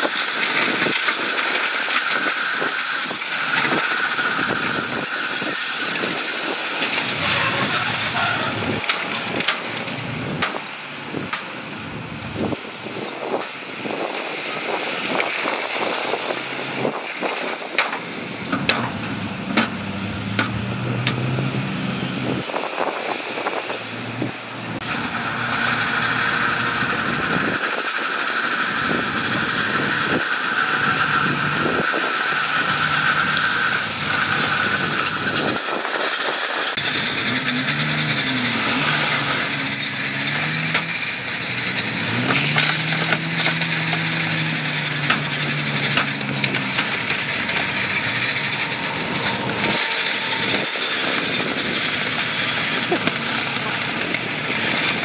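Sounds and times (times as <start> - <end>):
heavy machinery diesel engines: 0.0 - 55.0
metal clanks and knocks: 41.9 - 55.0
steady high whine: 42.6 - 55.0.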